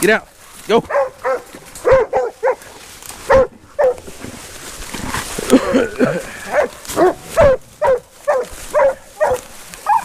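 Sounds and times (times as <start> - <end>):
dogs barking: 0.8 - 4.1, 6.4 - 10.0.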